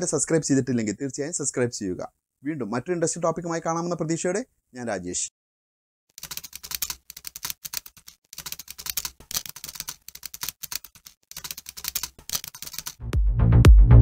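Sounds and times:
rapid keyboard key clicks: 0:06.1 - 0:13.0.

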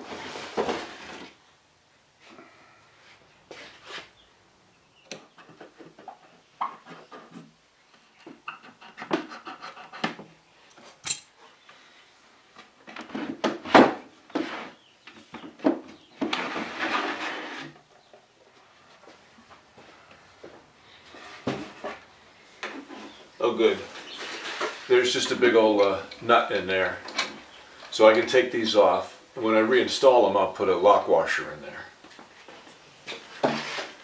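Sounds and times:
desk scraping: 0:16.0 - 0:17.9, 0:33.1 - 0:34.0.

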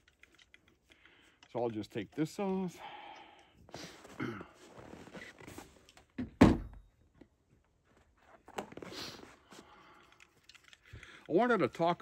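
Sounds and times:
handling noise of antenna: 0:03.7 - 0:06.2
loud thunk in truck bed: 0:06.2 - 0:06.8.

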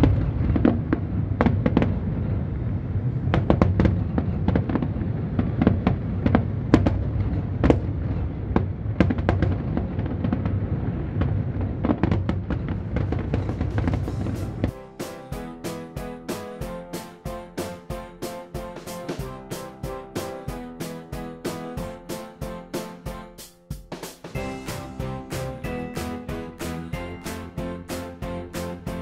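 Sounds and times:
fireworks bangs and crackles: 0:00.0 - 0:23.0, 0:24.2 - 0:29.0
low rumble: 0:12.6 - 0:14.8.

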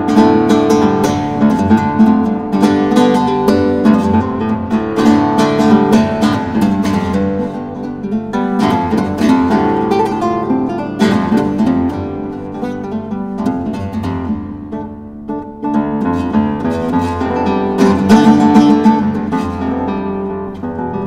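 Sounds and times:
acoustic guitar music: 0:00.0 - 0:21.0.

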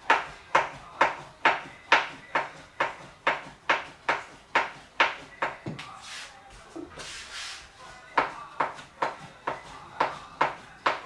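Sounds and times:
rolling pin knocking on wooden board: 0:00.0 - 0:05.8, 0:08.2 - 0:11.0.

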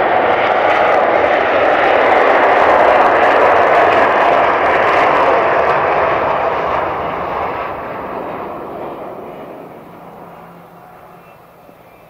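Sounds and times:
jet engines rushing: 0:00.0 - 0:12.0.

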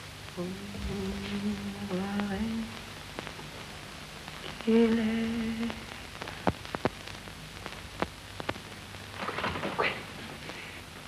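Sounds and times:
steady hiss: 0:00.0 - 0:11.0
woman humming: 0:00.4 - 0:02.8, 0:04.4 - 0:05.9.

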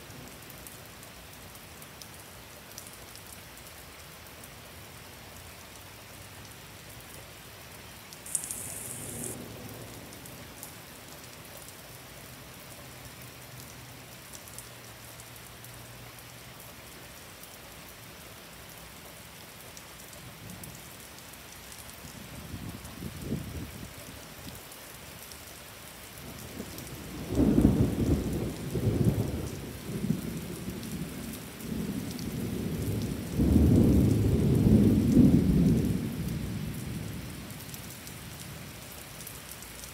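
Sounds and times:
heavy rain hissing: 0:07.4 - 0:11.1.

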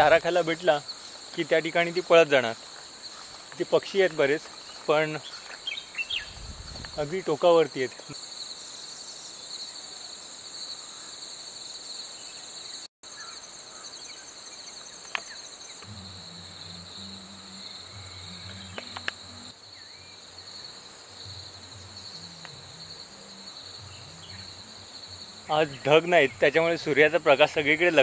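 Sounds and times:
insects trilling: 0:00.0 - 0:28.0
low drone: 0:15.8 - 0:19.5
faint clicks: 0:18.7 - 0:19.2.

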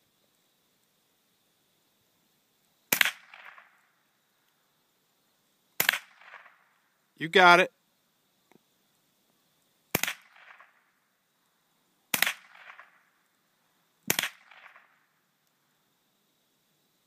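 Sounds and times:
rifle shots with echo: 0:14.1 - 0:14.9.

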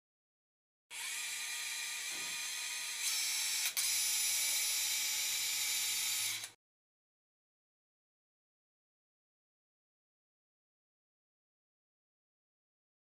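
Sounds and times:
high-pitched power drill whine: 0:00.9 - 0:06.6.

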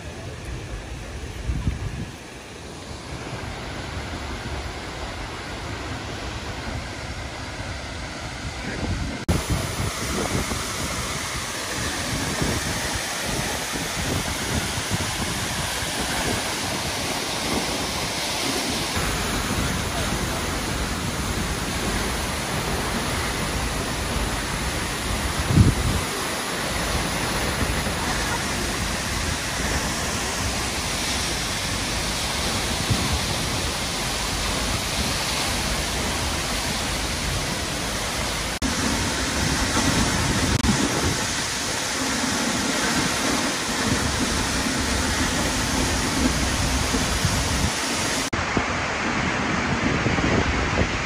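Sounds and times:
waterfall roaring: 0:00.0 - 0:51.0.

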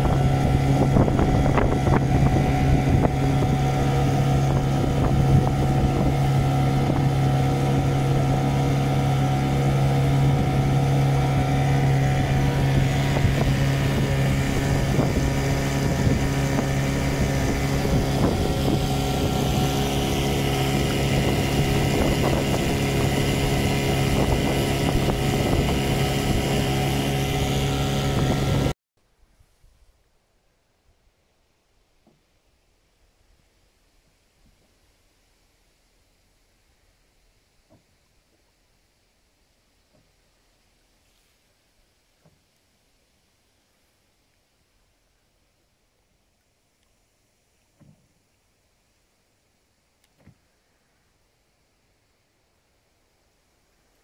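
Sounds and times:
motorboat engine running: 0:00.0 - 0:28.8
wind and water rushing: 0:00.0 - 0:28.8.

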